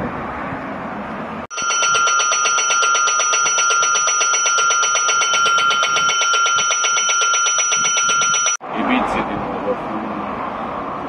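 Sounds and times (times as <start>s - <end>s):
electric bell ringing: 1.5s - 8.6s.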